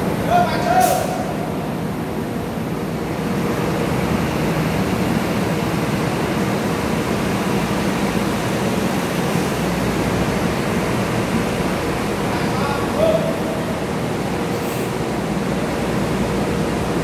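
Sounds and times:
diesel bus engines running: 0.0s - 17.0s.

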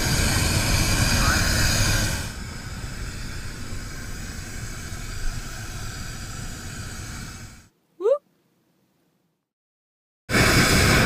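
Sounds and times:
propane burner rushing: 0.0s - 7.7s, 10.3s - 11.0s.

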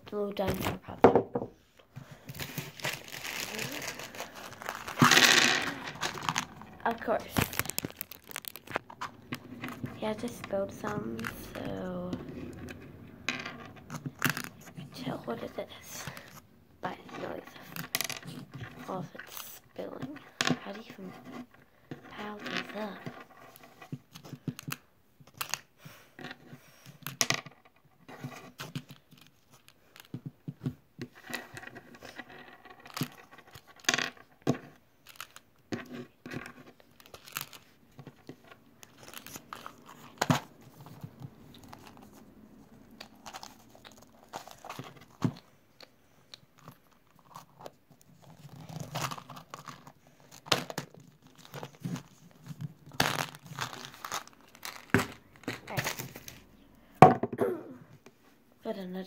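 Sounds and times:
plastic packaging crinkling and tearing: 2.2s - 12.1s, 35.0s - 35.5s, 36.4s - 45.4s, 46.6s - 56.5s.

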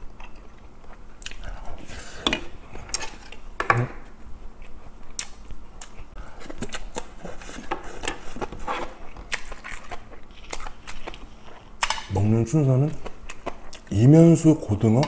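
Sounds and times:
person chewing rice: 0.0s - 1.9s, 4.5s - 12.0s.

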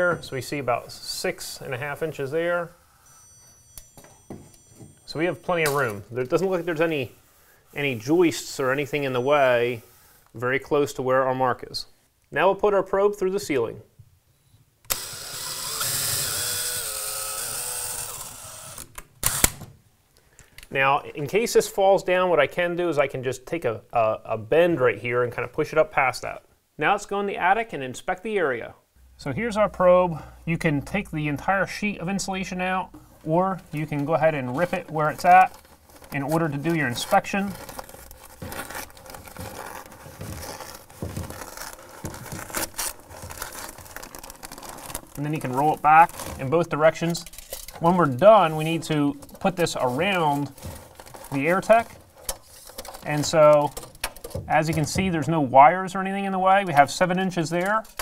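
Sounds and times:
cordless drill motor spinning: 14.9s - 19.5s
insulation rustling and crumpling: 32.2s - 54.8s
insulation tearing: 33.6s - 54.6s.

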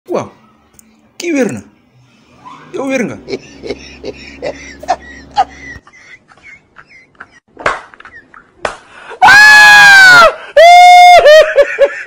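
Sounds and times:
man stifling laughter squeaks: 2.4s - 7.4s
man laughing: 2.8s - 8.4s, 10.6s - 12.0s.

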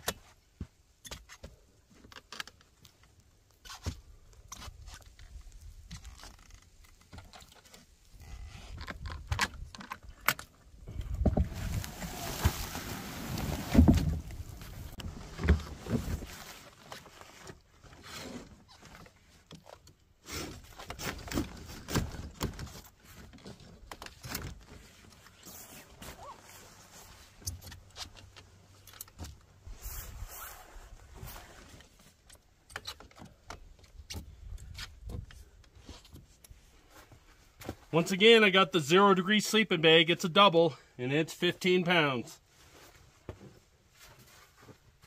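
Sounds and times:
camping gear knocks and rustling: 0.0s - 29.6s, 42.6s - 45.0s.

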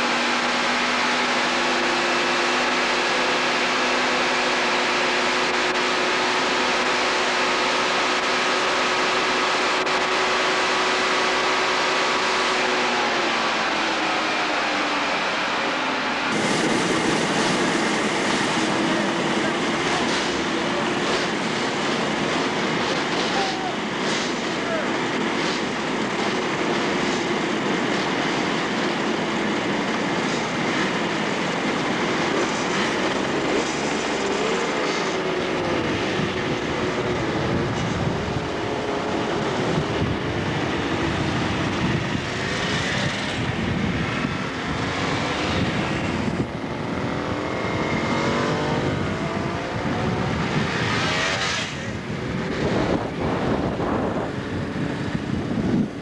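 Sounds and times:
wind and road noise: 0.0s - 56.0s
motorcycle engines accelerating: 29.9s - 56.0s.

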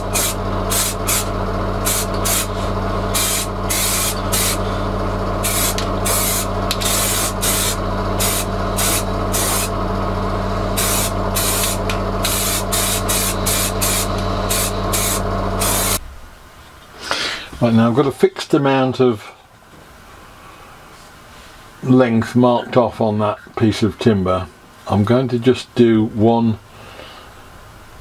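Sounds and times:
spray paint can hissing: 0.0s - 4.6s, 5.4s - 9.7s, 10.8s - 16.0s
low electrical hum: 0.0s - 28.0s.

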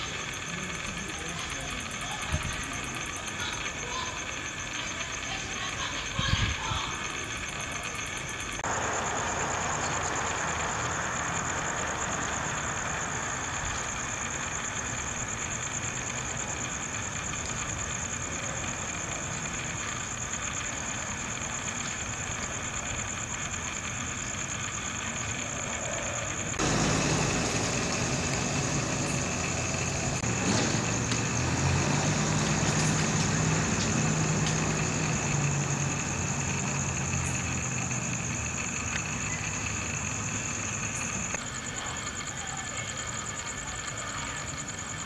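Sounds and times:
car engines idling: 0.0s - 45.0s
constant high-pitched tone: 0.0s - 45.0s
low engine hum: 6.6s - 14.7s, 24.4s - 42.0s.

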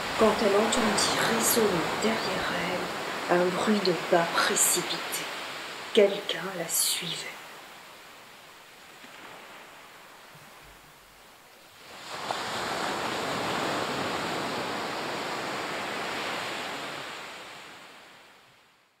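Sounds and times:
ocean surf rushing: 0.0s - 10.8s, 11.7s - 18.3s.

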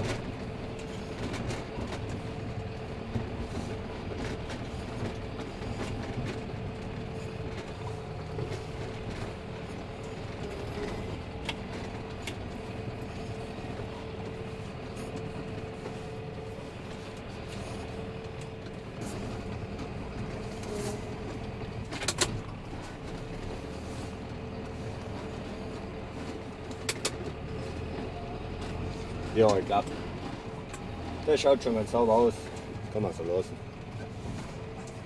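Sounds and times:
tractor engine running: 0.0s - 35.0s.

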